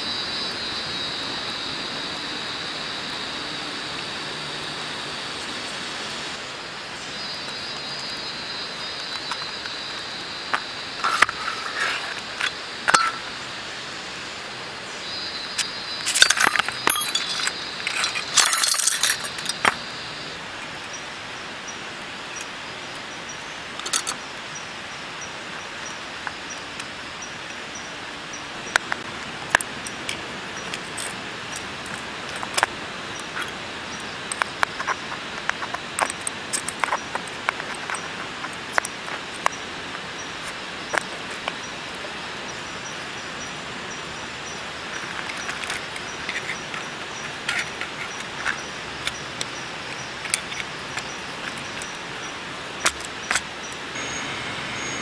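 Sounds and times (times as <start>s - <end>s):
steady hiss: 0.0s - 55.0s
metal rods clinking against tube: 16.1s - 19.8s.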